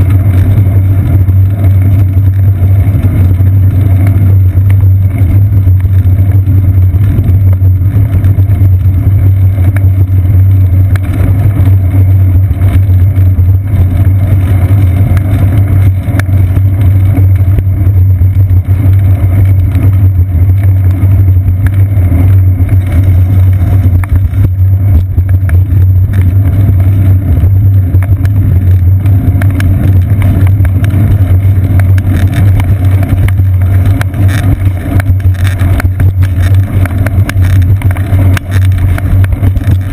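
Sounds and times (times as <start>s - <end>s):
low rumble of road vibration: 0.0s - 39.9s
wind: 0.0s - 39.9s.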